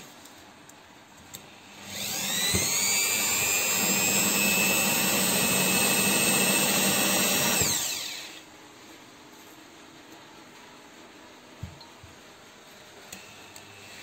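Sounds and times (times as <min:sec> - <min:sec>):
electric drill whining: 0:01.6 - 0:08.5.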